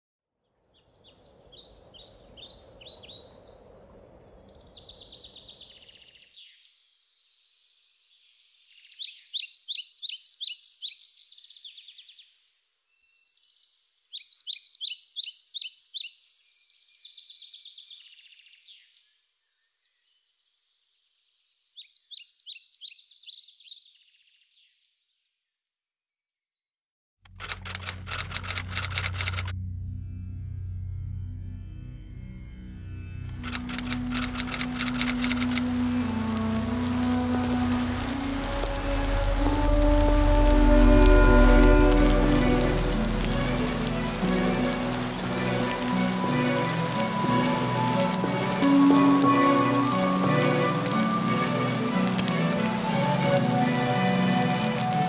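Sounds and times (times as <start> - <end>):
songbird singing: 0.6 - 24.8, 27.4 - 29.5, 33.3 - 55.0
low rushing noise: 27.4 - 55.0.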